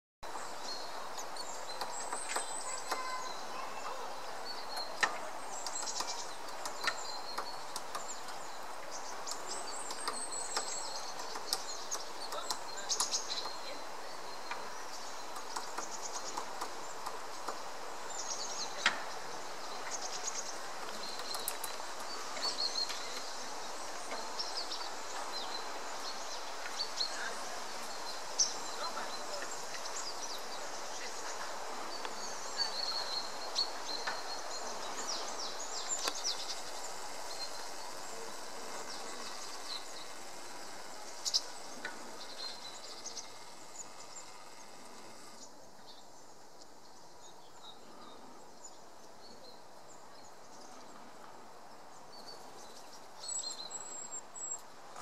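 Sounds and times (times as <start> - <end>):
small birds chirping: 0.2 - 55.0
woodpecker pecking on tree: 1.7 - 3.2, 4.8 - 13.6, 15.2 - 17.7, 20.0 - 23.3.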